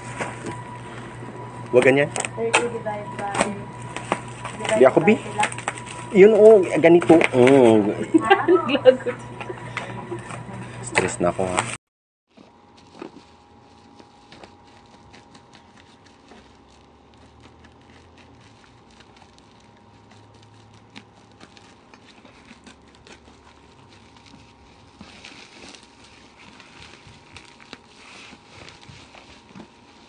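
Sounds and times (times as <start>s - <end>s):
plastic wrapping crinkling: 0.0s - 8.3s, 11.0s - 30.0s.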